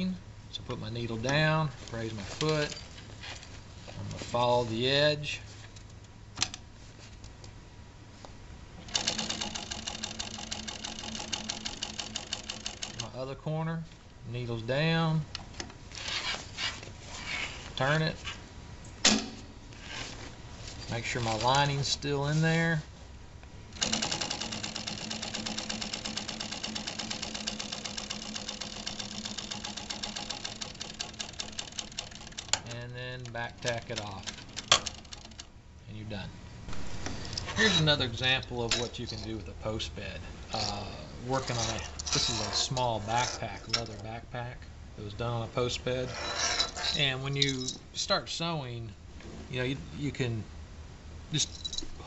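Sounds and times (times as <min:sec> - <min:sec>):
sewing machine stitching clatter: 0:08.9 - 0:13.2, 0:23.8 - 0:32.7, 0:33.6 - 0:35.5.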